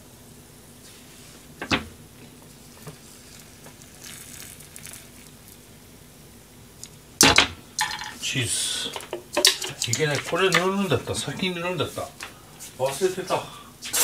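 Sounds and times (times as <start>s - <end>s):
bread sizzling in butter: 2.3s - 6.2s.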